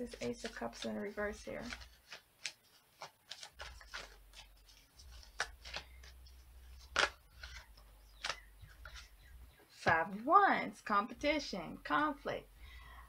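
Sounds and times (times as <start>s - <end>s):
cards slapping and rustling: 0.0s - 10.0s.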